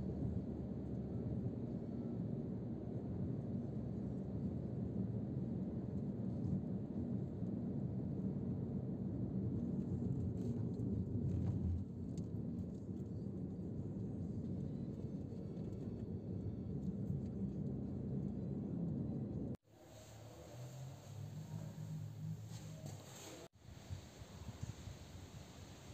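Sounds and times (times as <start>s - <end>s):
vehicle rumbling: 8.2s - 25.9s
wind noise on microphone: 23.6s - 25.9s.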